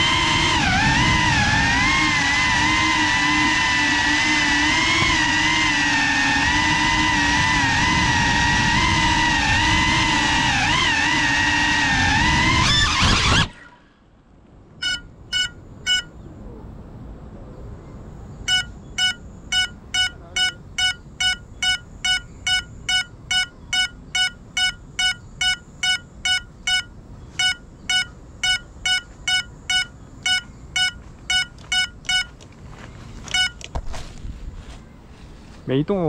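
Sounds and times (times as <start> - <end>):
faint high electronic whine: 0.0 - 36.0
short high-pitched beeps: 14.8 - 16.2, 18.4 - 32.4, 33.3 - 33.7.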